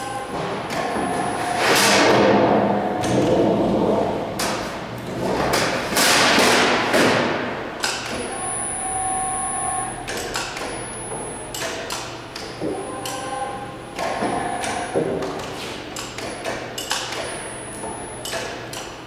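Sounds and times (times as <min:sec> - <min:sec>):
steady ringing tones: 0:00.0 - 0:01.7, 0:08.2 - 0:11.6, 0:12.2 - 0:15.0.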